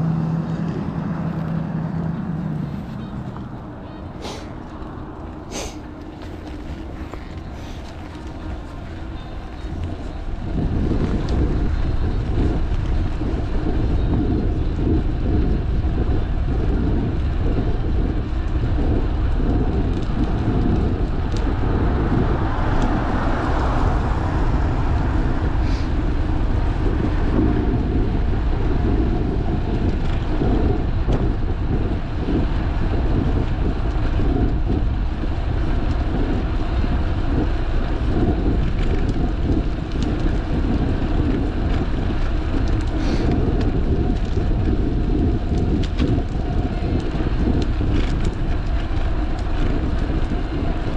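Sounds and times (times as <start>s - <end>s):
car passing: 0.0s - 14.4s, 20.1s - 32.4s
tyre rumble on asphalt: 0.0s - 50.9s
wind buffeting microphone: 0.0s - 50.9s.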